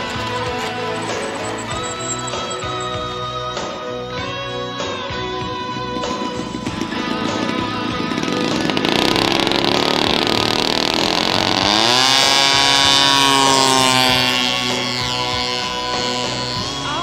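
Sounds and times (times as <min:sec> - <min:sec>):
model airplane engine revving: 0:00.0 - 0:03.8, 0:05.7 - 0:17.0.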